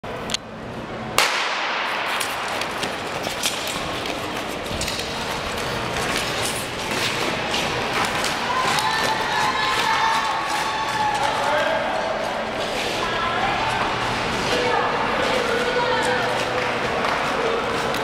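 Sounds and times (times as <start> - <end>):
skate blades clicking on ice: 1.2 - 13.0.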